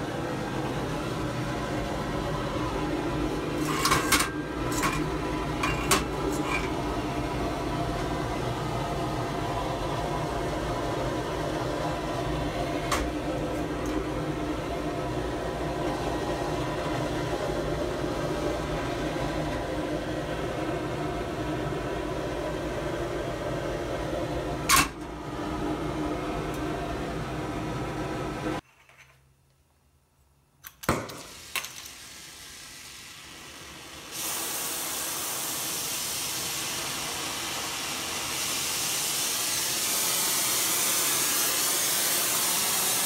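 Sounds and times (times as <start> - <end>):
sandblast cabinet drone: 0.0 - 24.6, 31.3 - 43.0.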